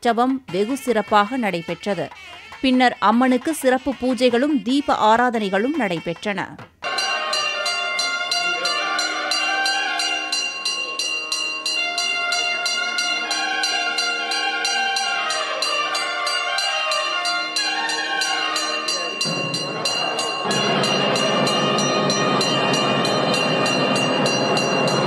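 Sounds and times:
temple bell ringing: 6.8s - 25.0s
wavering pitched melody: 6.8s - 25.0s.

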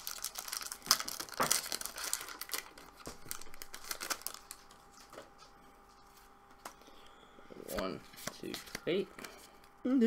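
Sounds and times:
foil wrapper crinkling: 0.0s - 5.2s.

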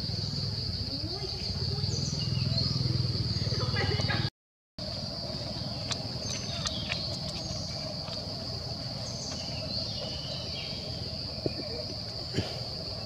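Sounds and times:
low background rumble: 0.1s - 13.0s.

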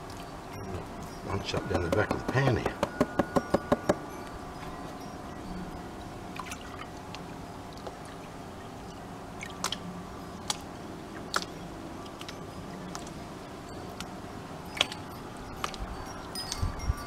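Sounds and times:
water sloshing in a tub: 6.3s - 8.2s
sharp water drips: 6.3s - 13.2s, 13.9s - 16.7s.

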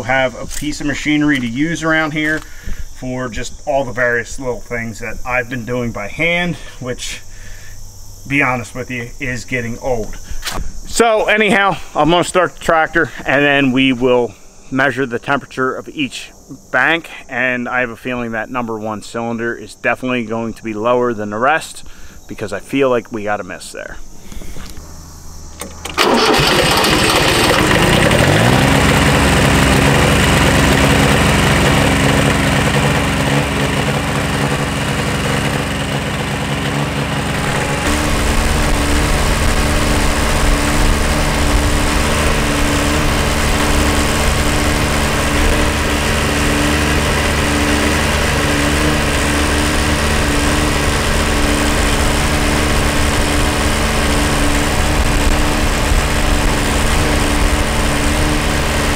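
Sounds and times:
diesel tractor engine starting and running: 0.0s - 7.7s, 24.2s - 58.9s.

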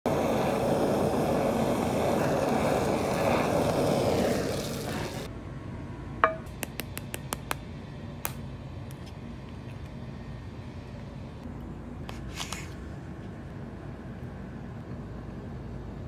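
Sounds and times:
kitchen torch hissing: 0.0s - 5.3s.

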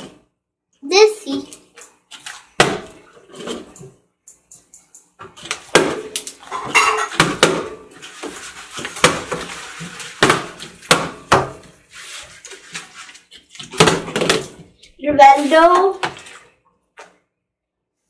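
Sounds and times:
water bottles landing on glass: 2.6s - 3.7s, 5.6s - 7.8s, 8.8s - 9.5s, 10.2s - 11.6s, 13.6s - 14.6s.

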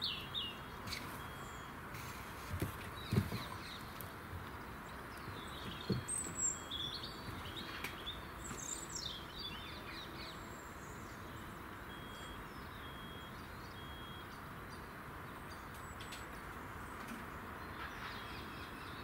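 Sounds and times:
small birds chirping: 0.0s - 19.0s.

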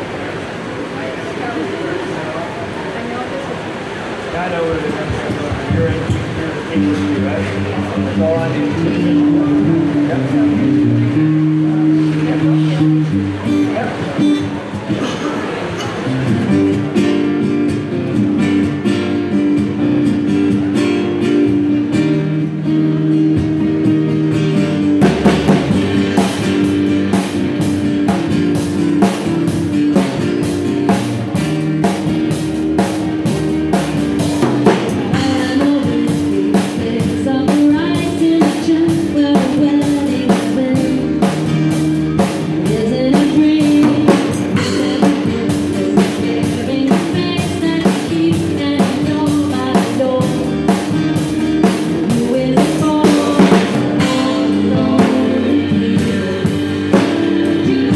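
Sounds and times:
acoustic and electric guitars: 0.0s - 57.9s
upright bass: 5.0s - 57.9s
drum kit steady beat: 24.7s - 57.9s
woman singing: 35.1s - 41.3s, 42.6s - 50.8s, 51.9s - 57.9s.

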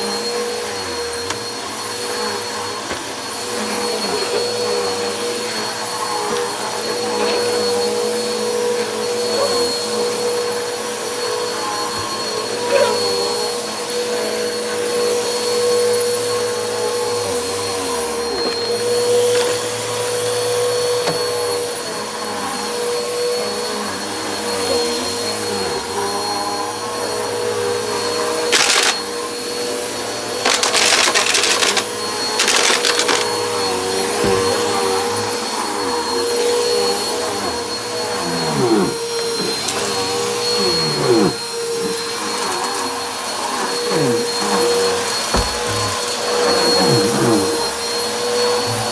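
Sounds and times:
vacuum cleaner motor whine: 0.0s - 48.9s
grit crackling up vacuum nozzle: 28.5s - 29.1s, 30.4s - 33.4s.

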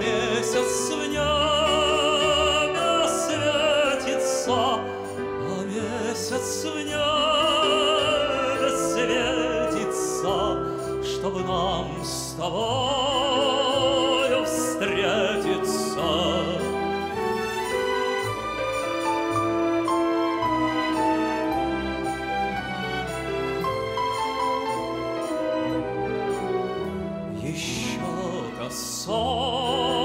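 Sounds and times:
man singing operatically: 0.0s - 17.0s, 27.3s - 30.0s
orchestral accompaniment: 0.0s - 30.0s.

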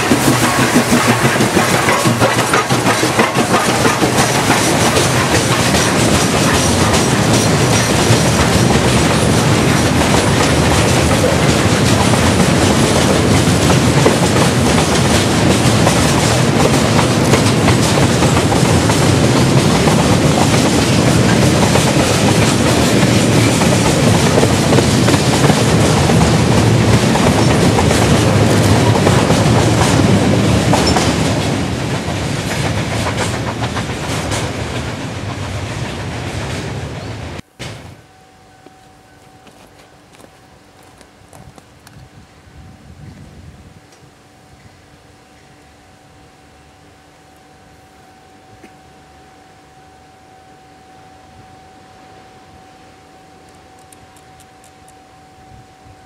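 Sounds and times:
train wheels clattering on rails: 0.0s - 38.0s.

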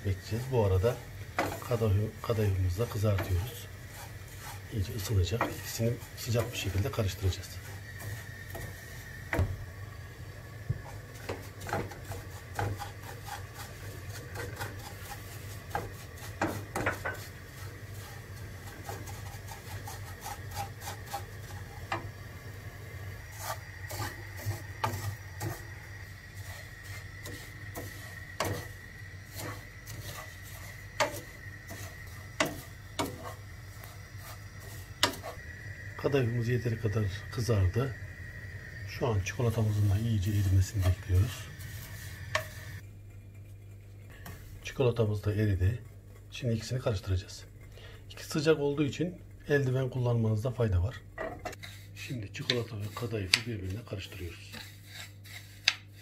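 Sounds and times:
wooden spoon scraping pastry: 0.0s - 9.5s, 10.8s - 38.0s, 38.8s - 42.8s, 51.4s - 56.0s
wood knocking on pan: 8.0s - 9.6s, 10.6s - 12.9s, 15.7s - 17.3s, 27.2s - 30.2s, 31.0s - 33.4s, 35.0s - 35.3s.

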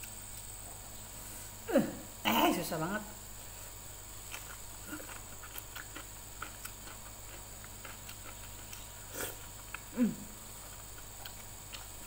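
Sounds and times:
wet chewing and lip smacks: 4.3s - 9.9s, 10.6s - 12.0s.

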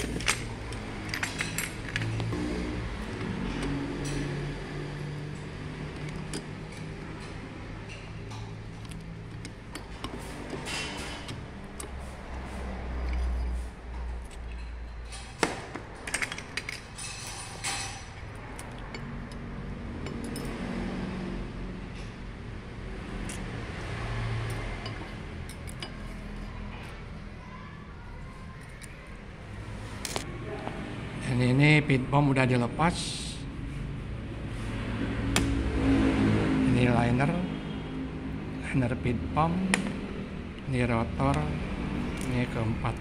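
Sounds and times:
metal parts clinking and tapping: 0.0s - 2.4s, 5.0s - 12.4s, 13.0s - 20.6s, 24.4s - 26.9s.

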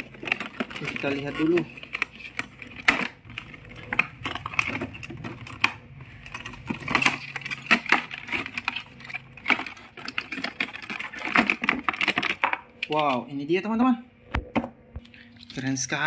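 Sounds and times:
packaging crinkling and clicking: 0.0s - 13.2s.

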